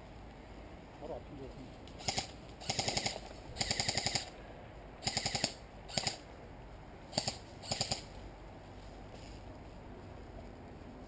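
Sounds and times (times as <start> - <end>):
airsoft rifle firing bursts: 2.0 - 4.3, 5.0 - 6.2, 7.1 - 8.1.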